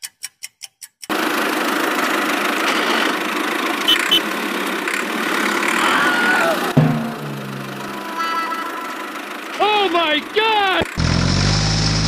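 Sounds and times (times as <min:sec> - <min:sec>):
rapid timer ticking: 0:00.0 - 0:01.2
tractor engine running: 0:01.1 - 0:12.0.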